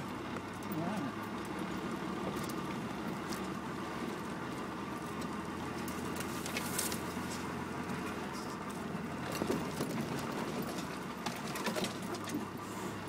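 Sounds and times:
car engine drone: 0.0s - 13.0s.

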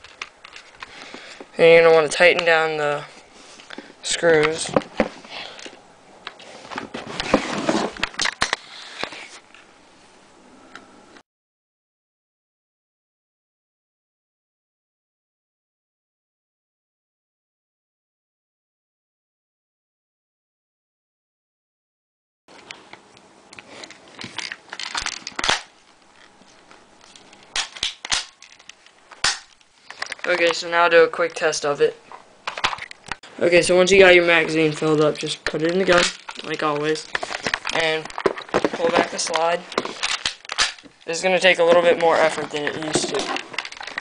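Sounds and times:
plastic pistol clicks and rattles: 24.2s - 26.3s, 27.1s - 30.6s, 35.4s - 41.0s, 42.0s - 44.0s.

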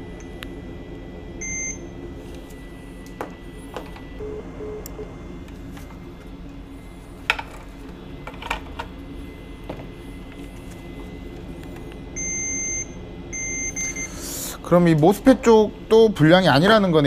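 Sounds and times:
multimeter continuity beep: 1.4s - 1.9s, 4.2s - 5.2s, 12.2s - 14.2s.

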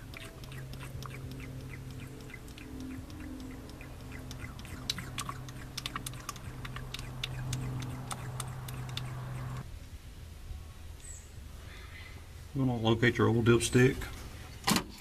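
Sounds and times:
oil glugging from bottle: 0.0s - 9.6s
sharp clicks and gurgles: 0.0s - 9.6s
low steady hum: 0.0s - 13.0s
faint ticks: 0.1s - 9.6s.

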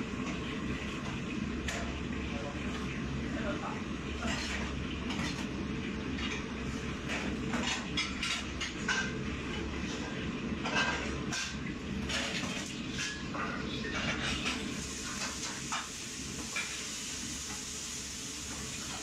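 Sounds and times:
burners and extraction hood noise: 0.0s - 19.0s
woks and utensils clattering: 0.1s - 2.9s, 4.0s - 17.8s, 18.4s - 19.0s
food sizzling in woks: 12.4s - 19.0s.

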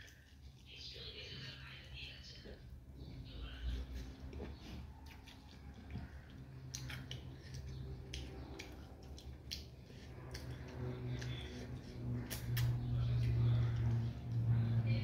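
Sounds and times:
low hum: 0.0s - 15.0s
wet chewing smacks: 3.8s - 14.8s.

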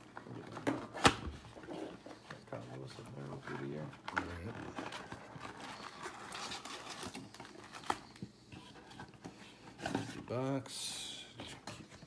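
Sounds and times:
card packaging tearing and crinkling: 2.9s - 8.3s.

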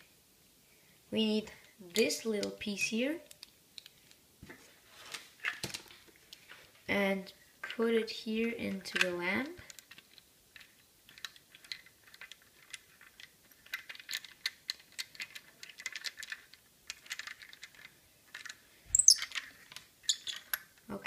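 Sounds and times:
plastic clicks and rattles: 5.4s - 6.6s, 8.8s - 20.8s.

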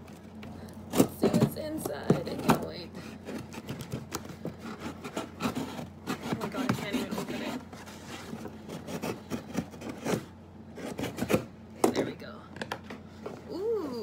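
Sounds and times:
scissors cutting cardboard: 0.9s - 11.5s.

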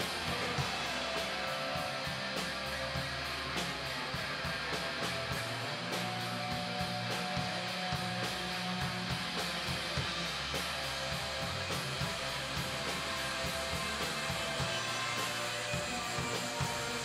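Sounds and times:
strummed guitar over a beat: 0.0s - 17.0s.

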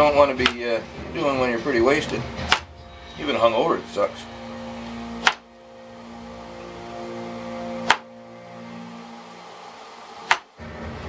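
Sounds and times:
steady mechanical hum: 0.0s - 11.0s
blade knocking on cutting board: 10.3s - 10.5s.

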